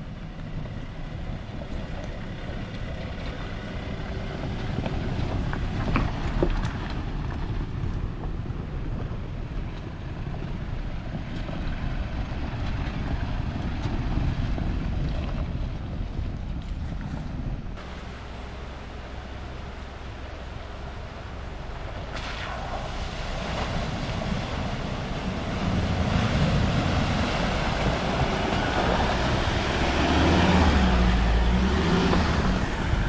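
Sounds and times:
wind buffeting microphone: 0:00.0 - 0:17.8, 0:22.8 - 0:33.0
vehicles rumbling over stones: 0:00.0 - 0:33.0.

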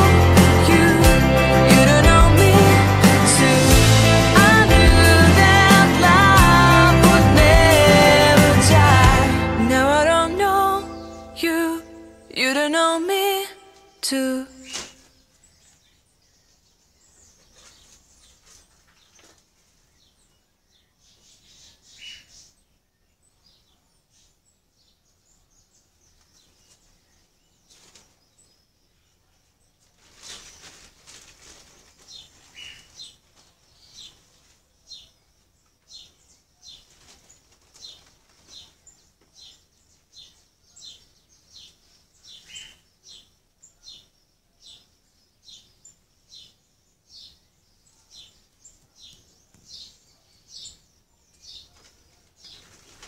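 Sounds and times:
small bird chirping: 0:13.7 - 0:53.0.

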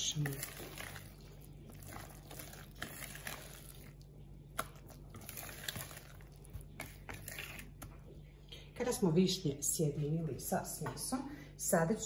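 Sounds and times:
whisk stirring thick batter: 0:00.0 - 0:08.2.

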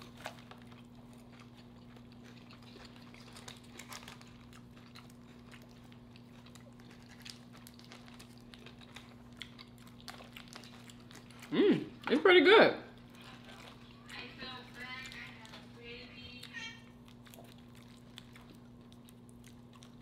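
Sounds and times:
person chewing with mouth clicks: 0:00.0 - 0:12.1, 0:16.9 - 0:20.0
low electrical hum: 0:00.0 - 0:20.0.

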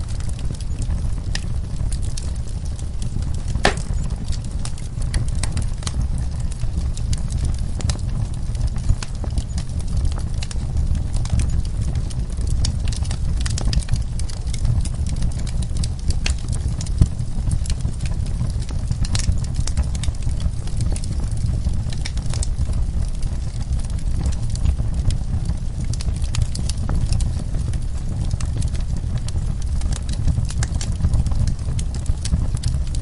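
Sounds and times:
fire burning with crackles and pops: 0:00.0 - 0:33.0.

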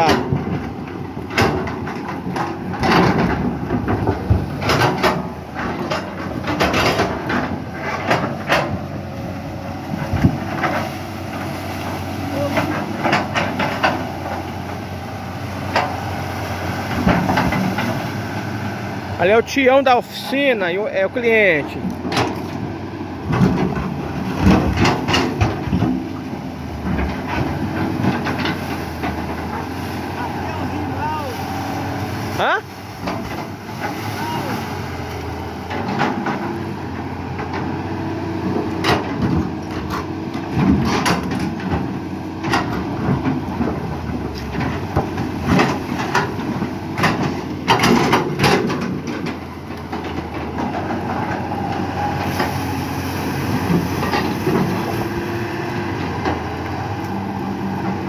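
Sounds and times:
metallic knocks and clanks: 0:00.0 - 0:08.8, 0:44.4 - 0:51.4
diesel engine running: 0:00.0 - 0:58.0
excavator bucket scraping earth: 0:00.0 - 0:58.0.

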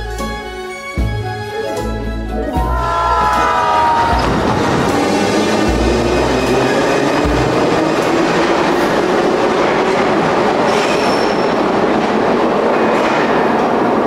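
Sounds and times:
high wheel squeal: 0:03.2 - 0:11.9
train wheels rumbling on rails: 0:03.5 - 0:14.0.

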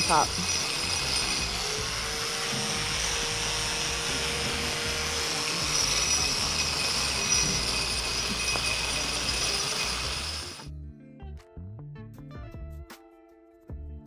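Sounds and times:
grinder grinding concrete: 0:00.0 - 0:10.7.

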